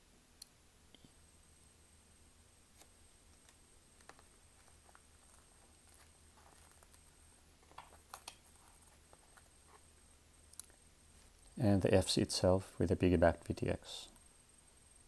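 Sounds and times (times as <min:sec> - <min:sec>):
fingers rustling plastic: 0:02.7 - 0:09.8.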